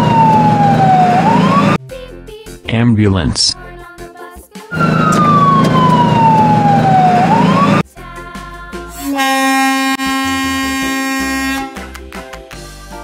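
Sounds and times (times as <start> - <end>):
cartoon siren wail: 0.0 - 1.8, 4.7 - 7.8
long steady horn note: 9.0 - 11.8.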